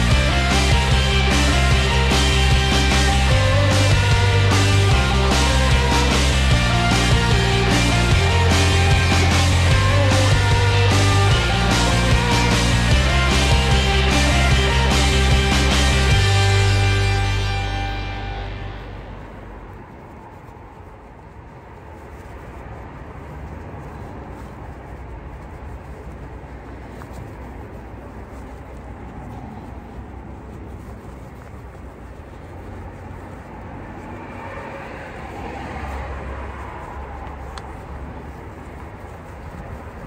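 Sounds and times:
low rumble: 0.0 - 20.8
cloth rubbing on wheel: 0.0 - 40.0.

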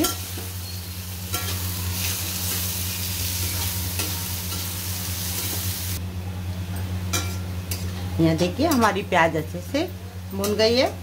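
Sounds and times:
onions sizzling in hot oil: 0.0 - 6.0.

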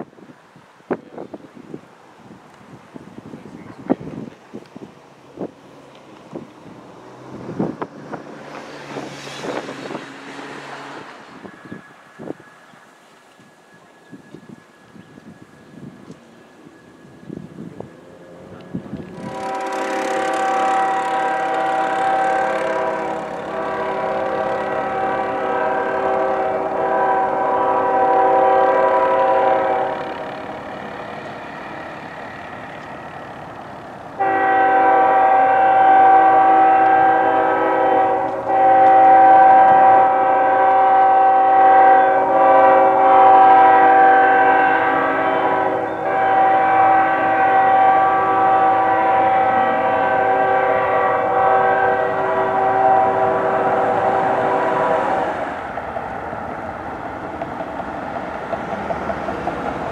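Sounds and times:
train rumble: 0.0 - 59.9
locomotive air horn blasts: 19.0 - 30.6, 34.2 - 55.5.

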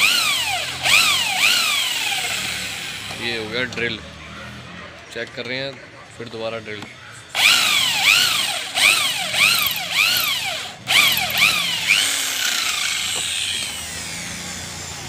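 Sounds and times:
electric drill motor whining: 0.0 - 3.8, 7.4 - 15.0.

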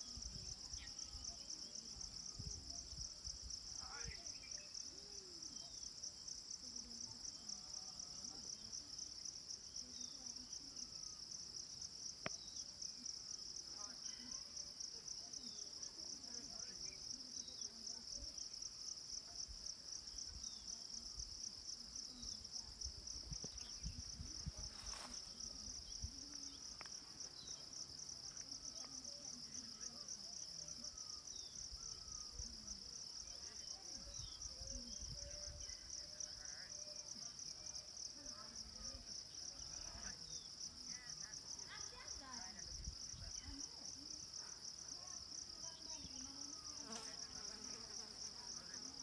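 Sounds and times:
faint distant voices: 0.0 - 49.0
insects buzzing: 38.3 - 49.0.

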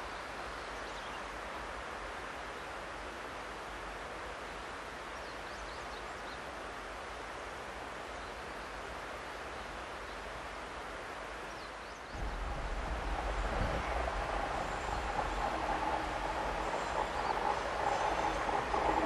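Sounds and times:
outdoor background hiss: 0.0 - 19.0
diesel railcar approaching: 12.2 - 19.0.

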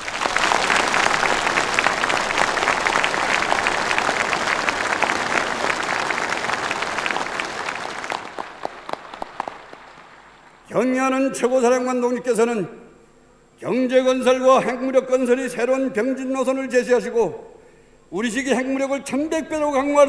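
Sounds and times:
large crowd applauding: 0.0 - 10.7.

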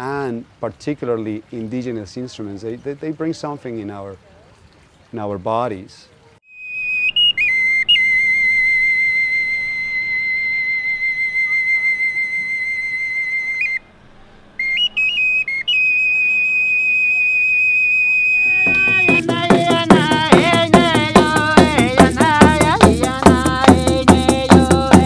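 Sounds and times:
high whistle notes: 6.5 - 13.9, 14.6 - 19.3
music with shaken rattle: 18.5 - 25.0.

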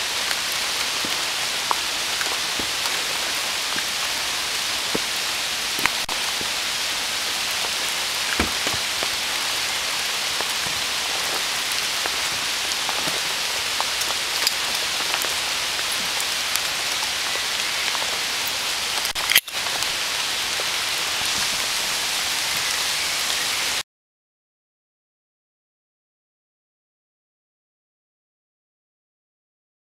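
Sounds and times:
rain falling on foliage: 0.0 - 23.8
water drips ticking: 7.5 - 19.6.

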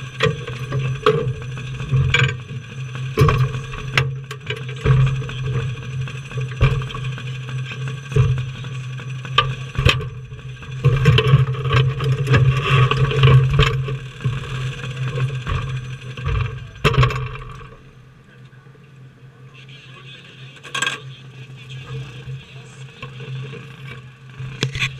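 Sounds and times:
engine shutting off: 0.0 - 18.2
race car engine idling: 0.0 - 24.9.

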